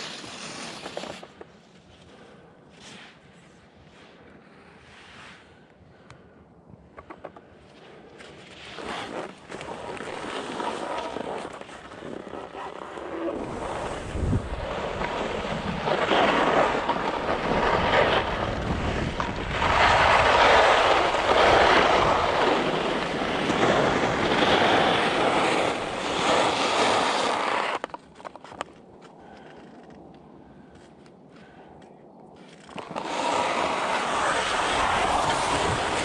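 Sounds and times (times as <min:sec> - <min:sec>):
skis scraping over snow: 0:00.0 - 0:01.4, 0:08.2 - 0:28.6, 0:32.5 - 0:36.0
wind on microphone: 0:13.3 - 0:27.7, 0:32.8 - 0:36.0.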